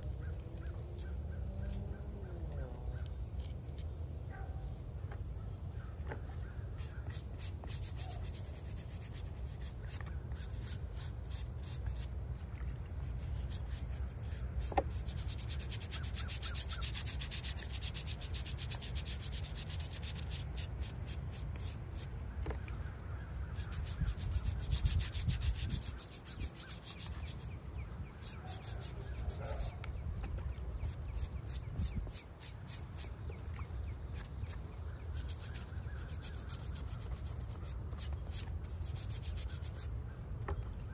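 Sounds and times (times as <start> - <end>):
brush scrubbing stone: 6.8 - 12.2, 12.8 - 22.1, 23.5 - 27.6, 28.2 - 29.9, 30.8 - 33.1, 34.1 - 39.9.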